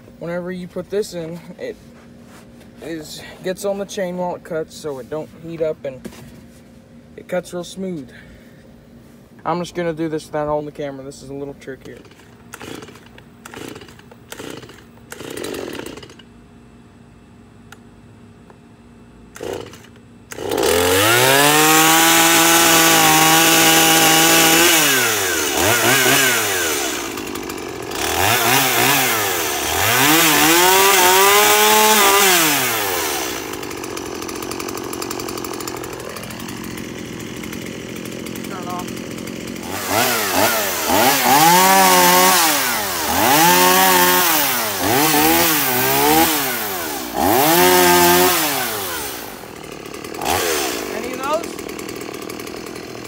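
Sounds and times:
chainsaw engine revving: 0:11.8 - 0:16.3, 0:19.3 - 0:53.0
chainsaw starter cord pulls: 0:11.8 - 0:16.3, 0:19.3 - 0:53.0.

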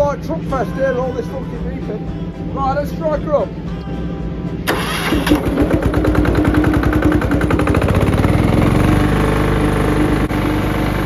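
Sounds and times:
pressure washer engine running: 0:04.7 - 0:11.0.

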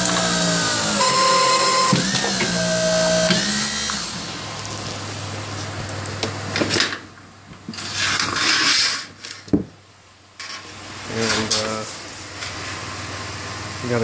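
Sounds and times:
hydraulic pump humming: 0:00.0 - 0:04.6.

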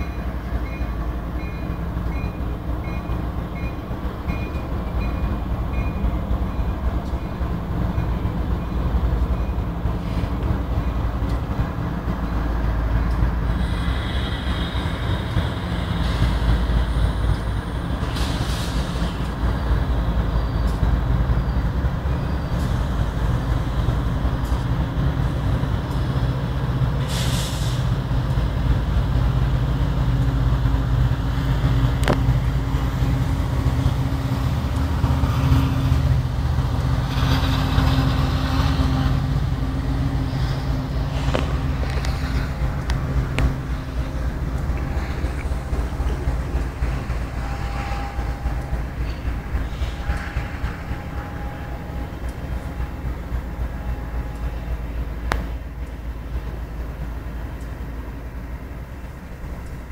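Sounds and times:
diesel locomotive engine drone: 0:00.0 - 0:59.9
freight train rolling by: 0:00.0 - 0:59.9
air hisses: 0:13.5 - 0:19.3, 0:27.0 - 0:27.9.

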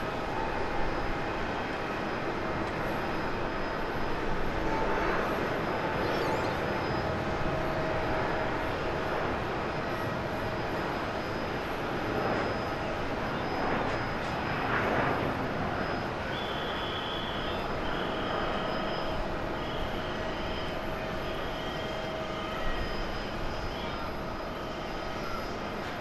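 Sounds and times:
jet engines at takeoff: 0:00.0 - 0:26.0
faint high-pitched tone: 0:05.8 - 0:07.2.

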